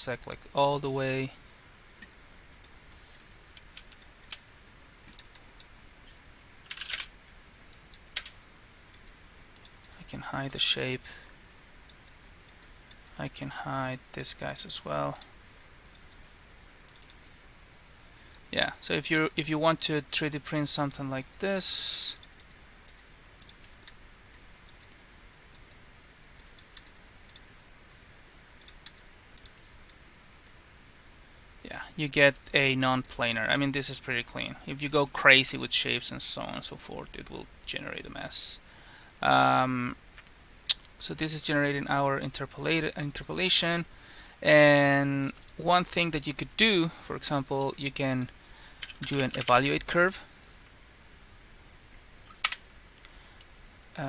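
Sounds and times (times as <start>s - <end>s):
low room hum: 0.0s - 54.0s
mouse clicks: 16.9s - 17.4s.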